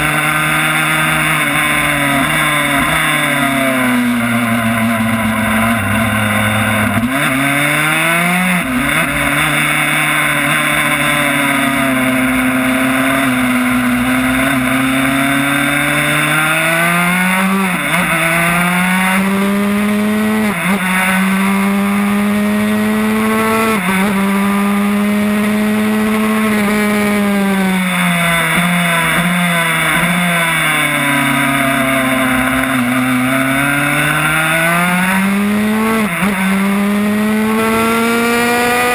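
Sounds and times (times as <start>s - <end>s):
two-stroke engine revving: 0.0s - 38.9s.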